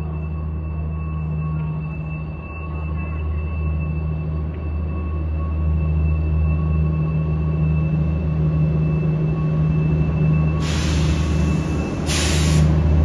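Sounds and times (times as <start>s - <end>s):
electric locomotive humming: 0.0s - 13.0s
air hissing: 10.6s - 12.8s.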